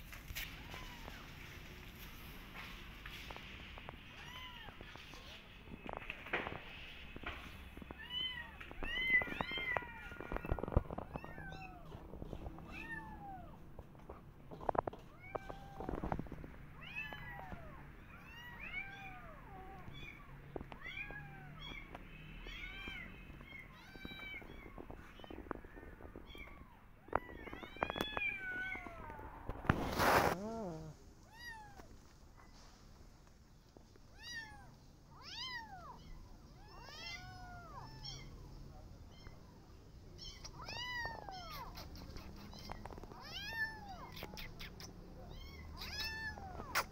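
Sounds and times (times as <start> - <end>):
kitten mewing: 30.0 - 31.9, 40.3 - 46.9.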